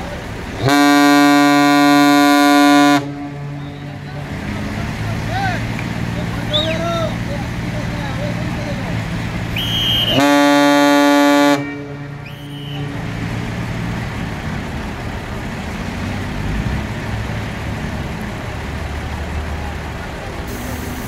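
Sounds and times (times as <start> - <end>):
ship's horn blast: 0.6 - 4.2, 9.6 - 13.4.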